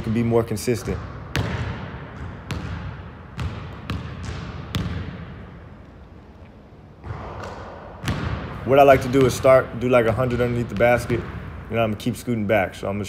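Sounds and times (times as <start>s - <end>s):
basketball bouncing on wooden floor: 0.8s - 5.4s, 7.0s - 11.4s.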